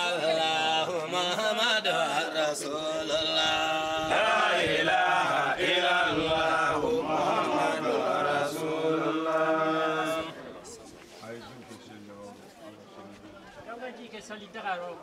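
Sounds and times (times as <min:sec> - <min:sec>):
men chanting prayer: 0:00.0 - 0:10.7.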